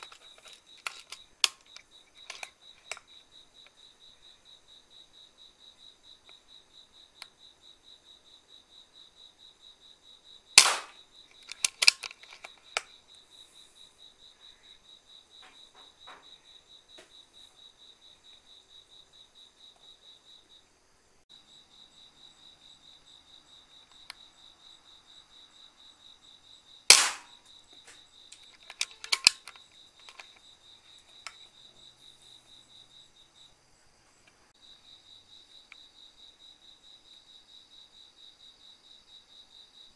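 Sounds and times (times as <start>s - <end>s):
faint clicks and knocks: 0.0s - 3.1s
crickets chirping: 0.0s - 39.9s
air rifle shots: 10.6s - 11.0s, 26.9s - 27.4s.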